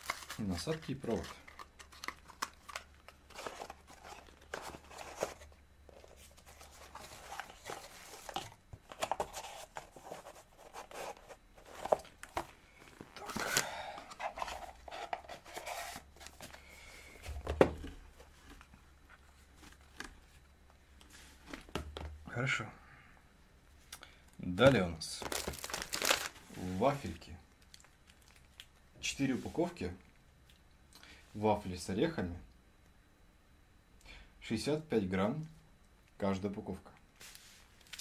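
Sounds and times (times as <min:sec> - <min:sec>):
plastic and cardboard rustling: 0:00.0 - 0:20.4, 0:24.6 - 0:27.2.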